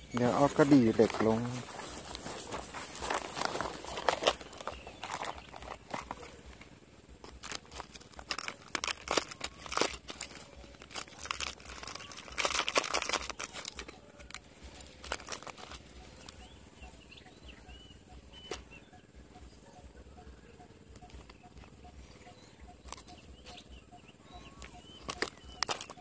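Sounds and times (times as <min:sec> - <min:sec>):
hands rustling: 0:00.0 - 0:18.7
fishing lures clicking in tackle box: 0:03.0 - 0:06.6, 0:07.2 - 0:16.4, 0:24.5 - 0:26.0.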